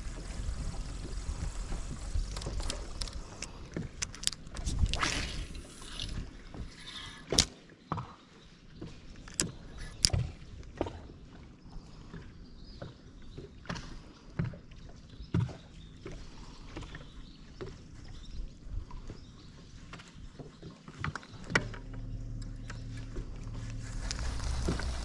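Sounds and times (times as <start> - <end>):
gear knocks and clicks: 1.0 - 5.0, 21.0 - 25.0.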